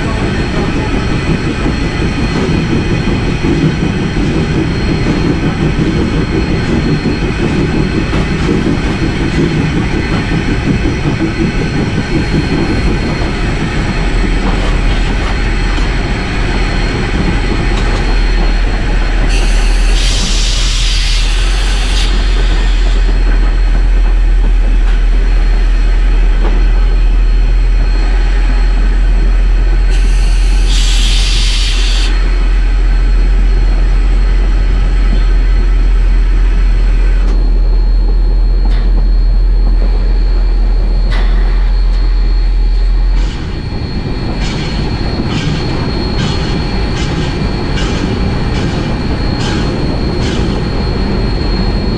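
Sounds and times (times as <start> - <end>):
steam locomotive rumbling: 0.0 - 51.9
steam hissing: 4.4 - 26.3, 29.7 - 35.4.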